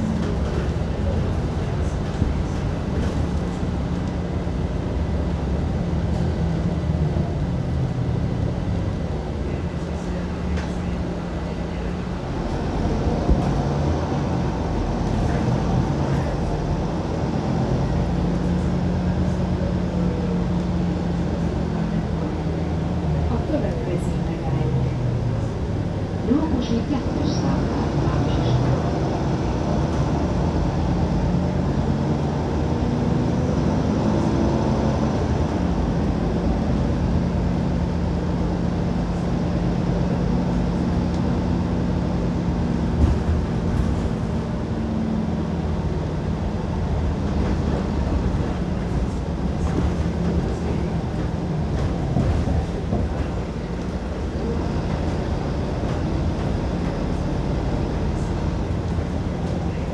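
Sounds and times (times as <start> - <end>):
bus engine hum: 0.0 - 59.9
road rumble: 0.0 - 59.9.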